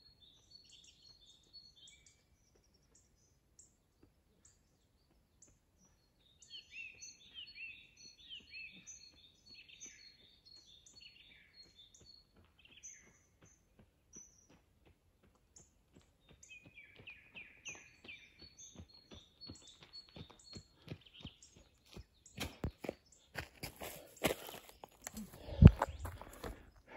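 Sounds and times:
songbird chirping: 0.0 - 26.9
running footsteps on gravel: 7.2 - 26.9.

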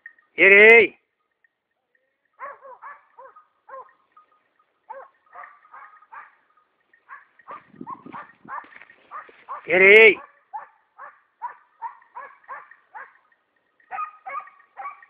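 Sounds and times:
distant dogs barking: 2.4 - 15.0.

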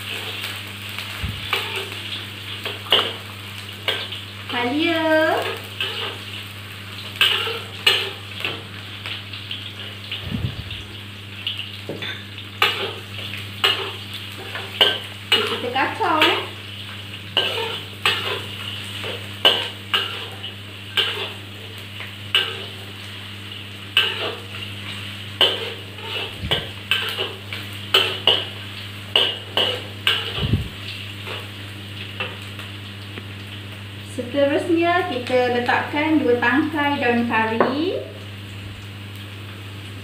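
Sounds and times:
food sizzling in hot oil: 0.0 - 40.0
metal spatula scraping a wok: 5.4 - 6.2, 7.2 - 8.6, 17.4 - 20.4, 21.0 - 21.4, 24.0 - 24.4, 25.4 - 28.5.

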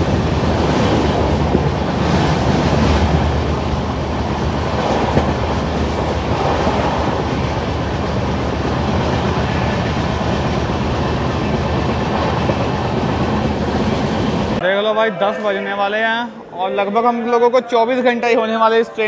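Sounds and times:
train wheels rumbling on rails: 0.0 - 14.6.

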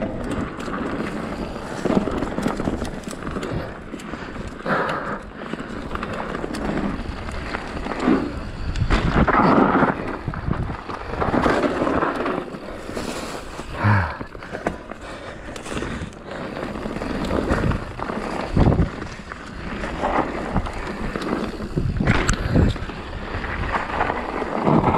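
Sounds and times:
wind rumble on microphone: 5.6 - 14.6, 15.4 - 24.9.

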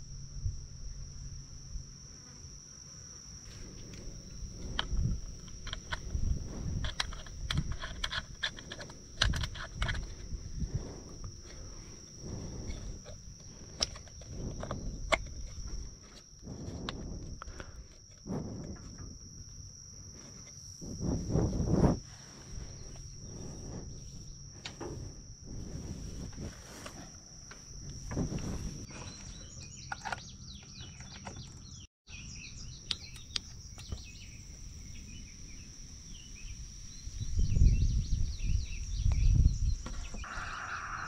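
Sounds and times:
insects trilling: 0.0 - 41.0
rustling clicks: 3.5 - 19.0
low rumbles: 3.5 - 29.5.

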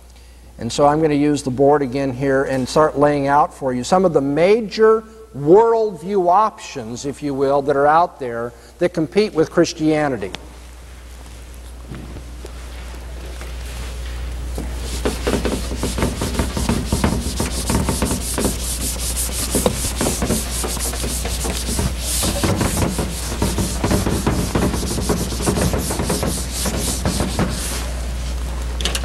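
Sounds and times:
eraser rubbing on whiteboard: 13.9 - 27.9.

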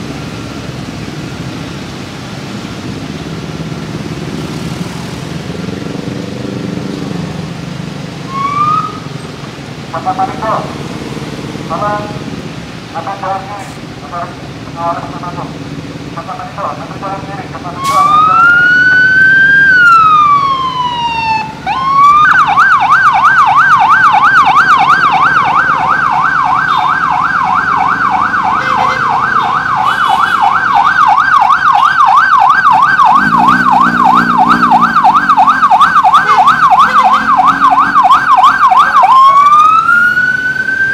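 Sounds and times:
police siren wailing and yelping: 8.2 - 9.2, 17.6 - 40.9.

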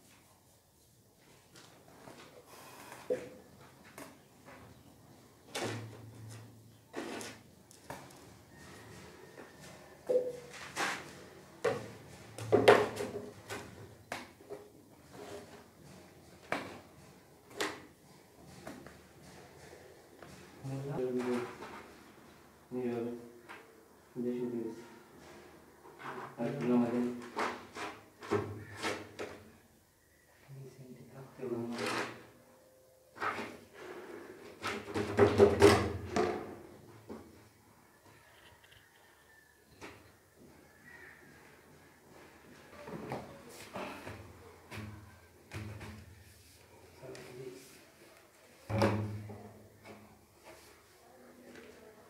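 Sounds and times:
plastic pipes knocking and scraping: 10.0 - 21.9, 34.6 - 37.3, 44.2 - 46.2, 48.7 - 50.0.

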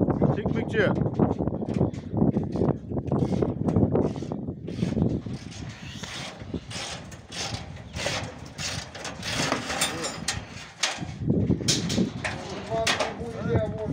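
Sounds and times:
men talking low: 12.2 - 13.9.

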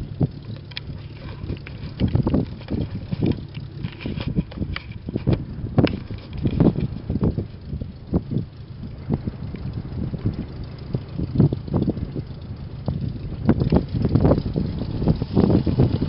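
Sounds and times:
light aircraft engine running: 0.0 - 16.0
wind buffeting the microphone: 0.0 - 16.0.

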